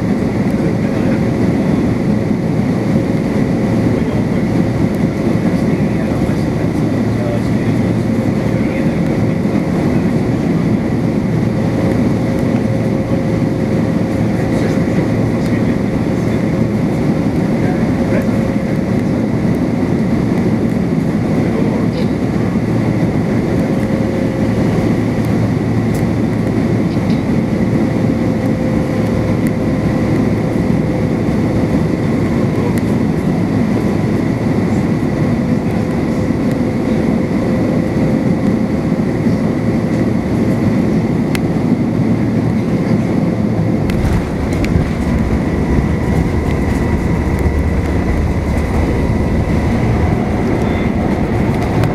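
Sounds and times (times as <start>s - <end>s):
jet engine hum: 0.0s - 51.9s
rush of air over fuselage: 43.4s - 51.9s.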